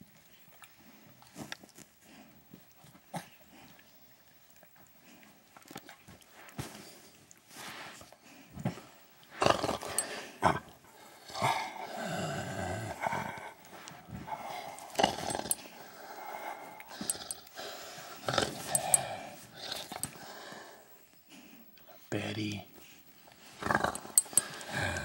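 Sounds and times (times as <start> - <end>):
dog growly moans: 9.4 - 20.9, 23.4 - 25.0.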